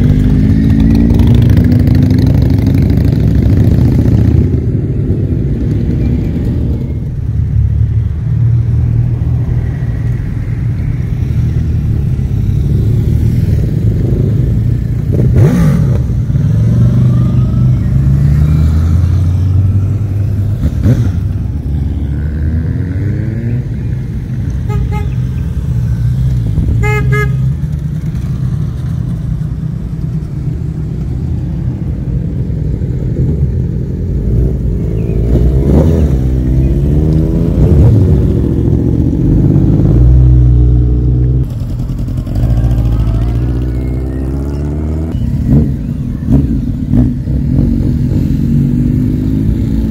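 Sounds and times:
motorcycle engines revving: 0.0s - 49.9s
horn tooting: 24.6s - 25.5s, 26.6s - 27.7s.

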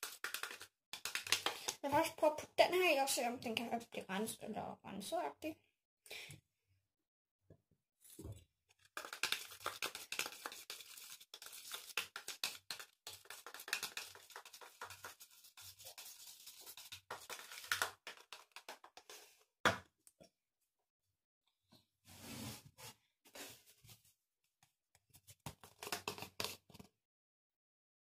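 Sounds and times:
scissors scraping a plastic cup: 25.6s - 26.9s.

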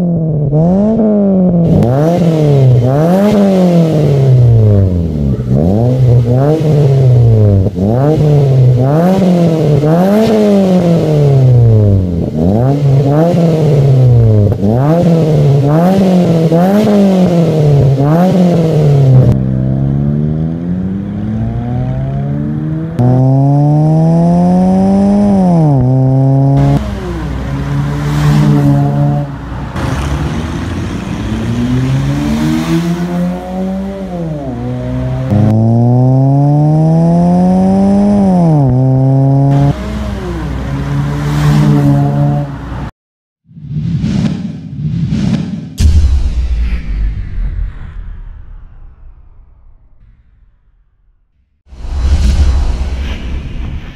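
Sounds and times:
car engine revving: 0.0s - 42.9s
car accelerating through gears: 12.4s - 42.6s.

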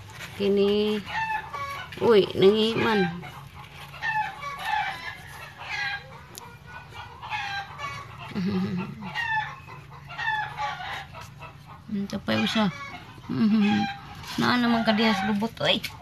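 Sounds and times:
puppies squeaking and whimpering: 1.1s - 16.0s.

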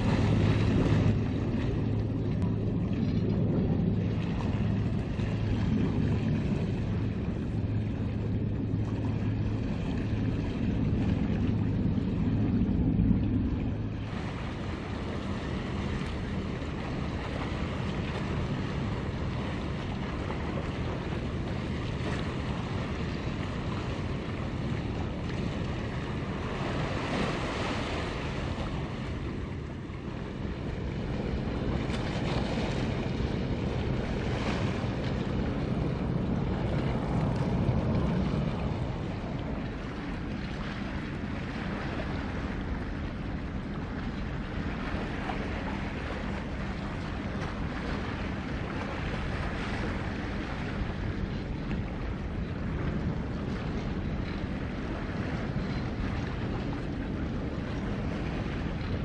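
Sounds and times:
ship engines drone: 0.0s - 59.0s
water lapping: 0.0s - 59.0s
wind buffeting microphone: 0.0s - 59.0s.

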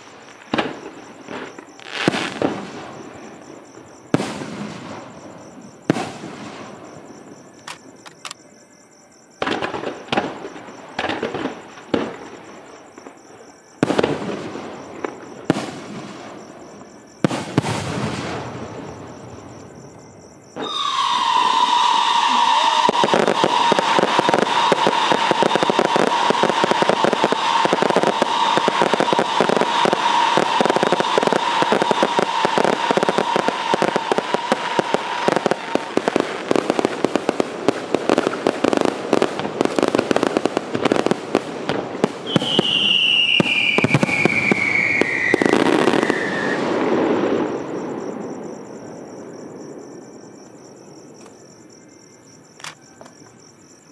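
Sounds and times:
firework whistling: 0.0s - 8.4s, 13.8s - 49.2s
fireworks crackling and popping: 0.0s - 8.4s, 9.4s - 49.8s
crickets chirping: 0.0s - 53.9s
falling whistle: 20.6s - 35.2s, 42.2s - 46.7s.

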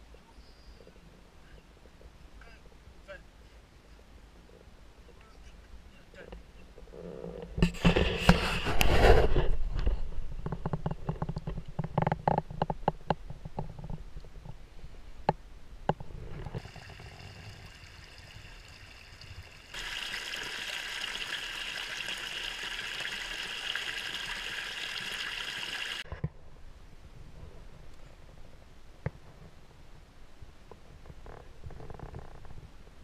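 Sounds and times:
brook running over stones: 16.6s - 26.0s.

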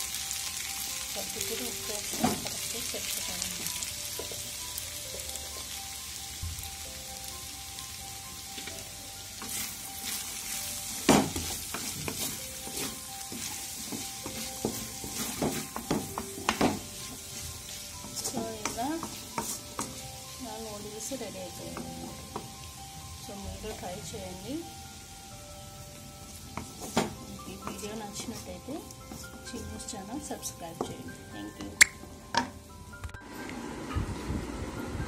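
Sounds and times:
noodles sizzling in a pan: 0.0s - 32.9s
spatula scraping and knocking pan: 11.0s - 20.0s.

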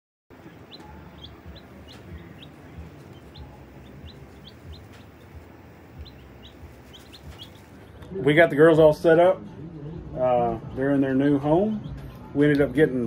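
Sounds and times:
low steady rumble: 0.3s - 8.2s
baby chicks peeping: 0.3s - 9.3s, 10.0s - 13.0s.

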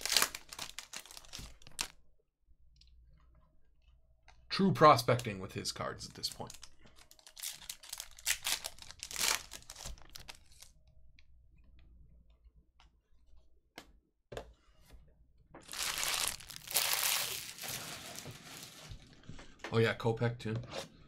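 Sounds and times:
foil wrapper crinkling and tearing: 0.0s - 1.9s, 6.4s - 10.7s, 15.7s - 19.0s
rustling: 15.6s - 19.1s.

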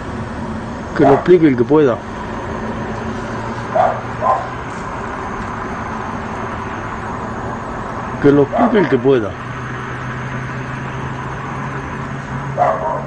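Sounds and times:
city traffic hum: 0.0s - 13.0s
dog barking: 1.0s - 1.3s, 3.7s - 4.6s, 12.6s - 13.0s.

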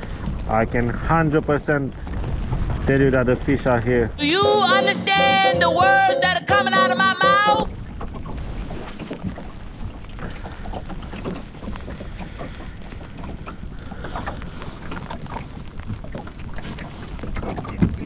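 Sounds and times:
water lapping against boat hull: 7.6s - 18.0s.

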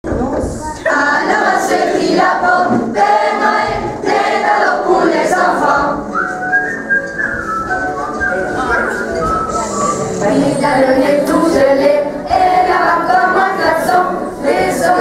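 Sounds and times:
children singing in chorus: 0.8s - 6.2s, 9.5s - 15.0s.

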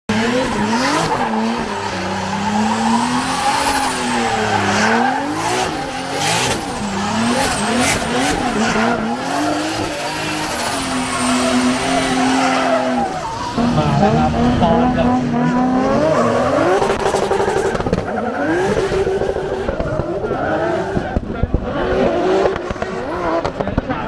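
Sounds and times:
car engine revving: 0.1s - 24.0s.

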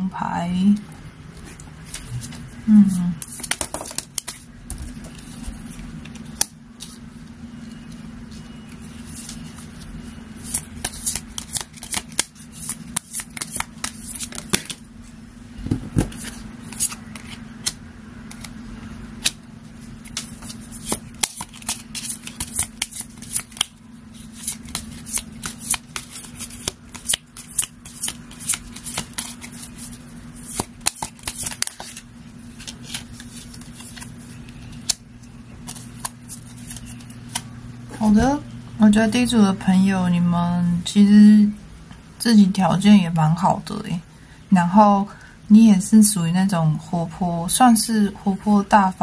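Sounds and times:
cards being shuffled: 1.4s - 7.0s, 7.7s - 14.8s, 15.7s - 18.6s, 19.2s - 37.5s.

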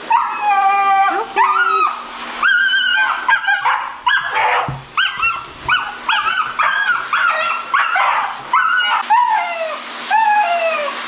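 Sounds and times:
pet dryer blowing: 0.0s - 11.0s
puppy yelping and whining: 0.1s - 11.0s
dull knock: 4.2s - 5.8s.

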